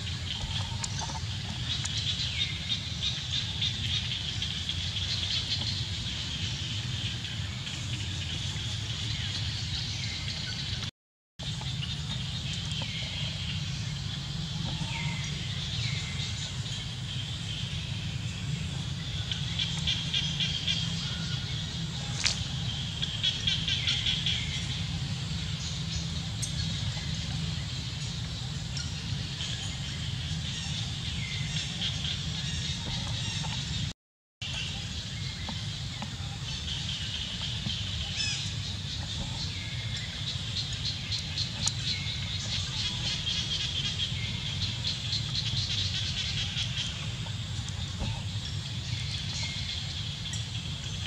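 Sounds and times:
steady low rumble: 0.0 - 51.0
small birds chirping: 34.5 - 51.0.

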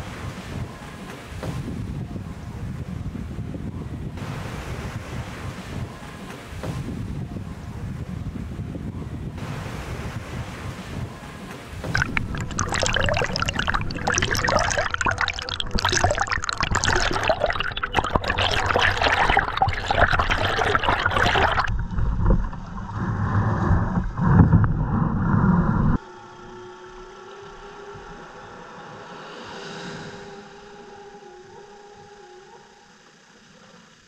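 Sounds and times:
water splashing against kayak hull: 11.6 - 25.8.

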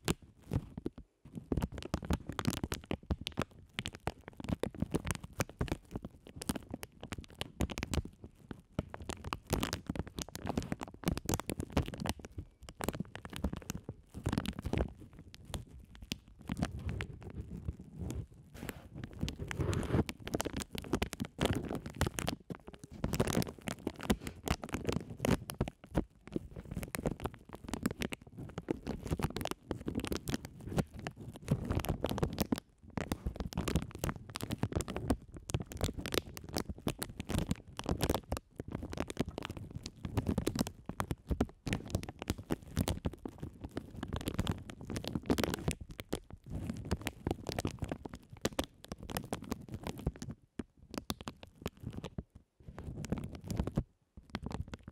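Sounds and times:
plastic bags crinkling: 8.6 - 50.0.

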